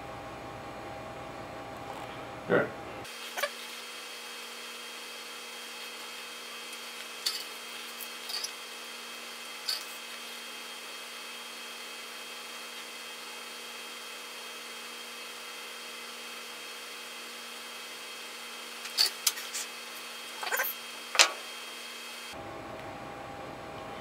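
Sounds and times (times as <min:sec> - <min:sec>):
faint hum: 0:00.0 - 0:10.9, 0:22.2 - 0:24.0.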